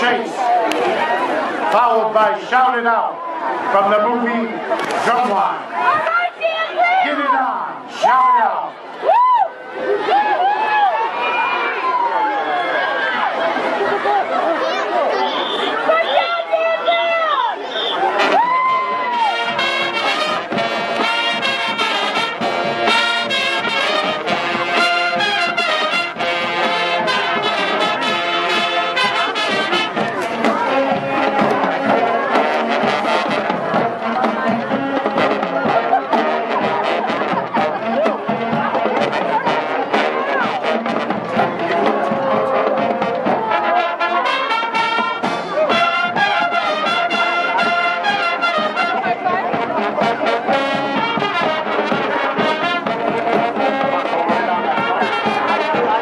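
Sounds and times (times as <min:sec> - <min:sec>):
marching band playing: 0:00.0 - 0:08.7, 0:15.2 - 0:56.0
drum beats: 0:18.1 - 0:56.0.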